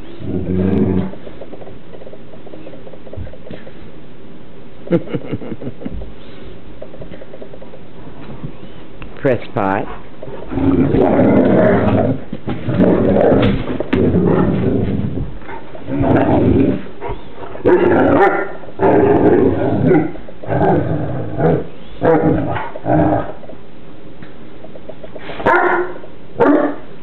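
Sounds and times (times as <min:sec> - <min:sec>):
dogs growling and barking: 0:00.0 - 0:01.4, 0:09.9 - 0:23.5, 0:25.2 - 0:26.9.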